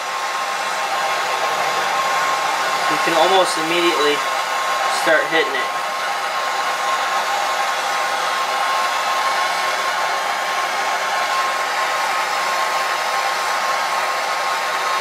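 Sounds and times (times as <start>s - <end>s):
torch flame hissing: 0.0s - 15.0s.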